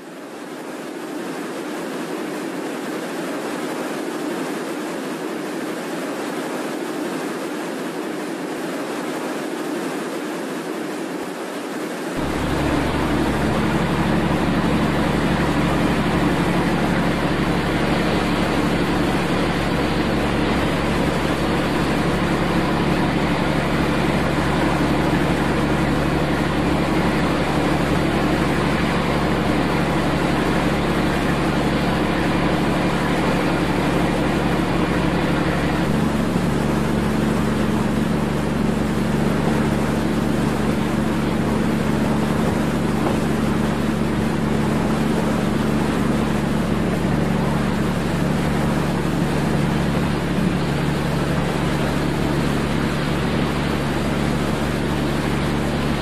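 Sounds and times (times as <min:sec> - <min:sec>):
ship engines droning: 0:12.2 - 0:56.0.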